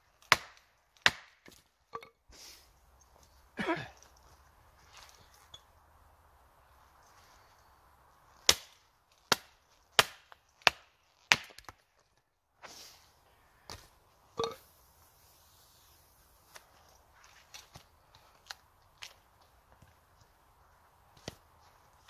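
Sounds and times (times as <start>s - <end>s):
hatchet chopping firewood: 0.1s - 1.7s, 8.3s - 11.9s, 21.1s - 21.5s.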